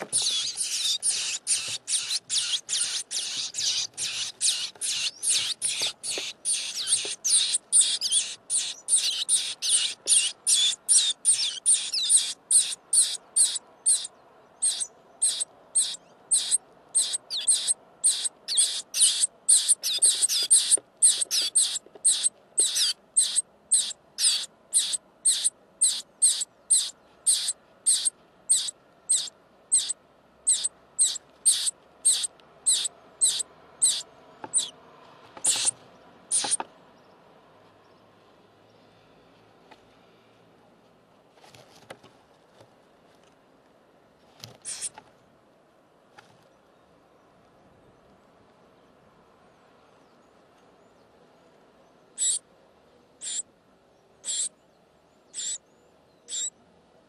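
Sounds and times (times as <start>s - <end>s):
nestling birds begging calls: 0.0s - 34.8s, 35.4s - 36.6s, 44.6s - 45.0s, 52.2s - 52.4s, 53.2s - 53.5s, 54.2s - 54.6s, 55.3s - 56.6s.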